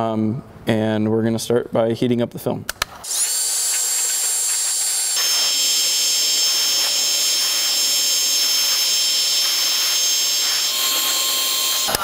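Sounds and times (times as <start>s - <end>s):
heat gun running: 3.0s - 12.0s.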